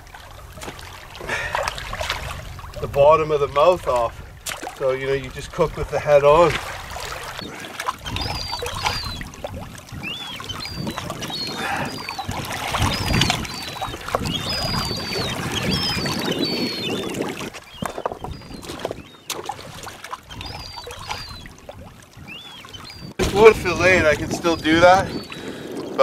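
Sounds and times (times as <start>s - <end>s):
waves lapping on rocky shore: 0.0s - 26.0s
gull cries: 7.3s - 19.4s, 20.2s - 21.6s, 22.2s - 26.0s.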